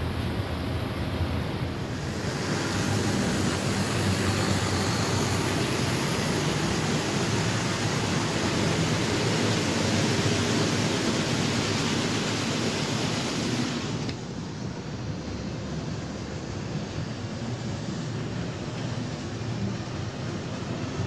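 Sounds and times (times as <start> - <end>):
model train rolling rumble: 1.8 - 15.2.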